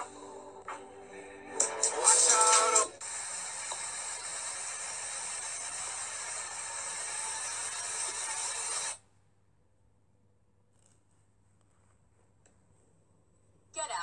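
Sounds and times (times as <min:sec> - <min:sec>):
steady hissing noise: 0:00.0 - 0:09.0.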